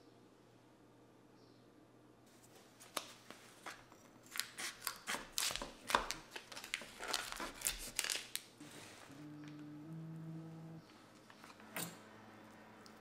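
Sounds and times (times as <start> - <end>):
plastic crinkling: 2.4 - 8.6.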